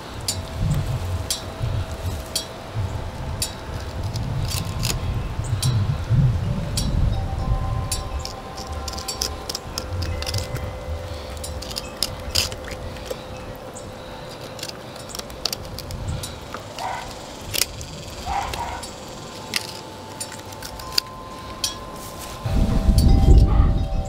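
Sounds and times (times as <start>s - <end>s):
faint steady hum: 0.0s - 24.0s
knife cutting through fish bones: 8.2s - 13.4s, 14.3s - 18.8s.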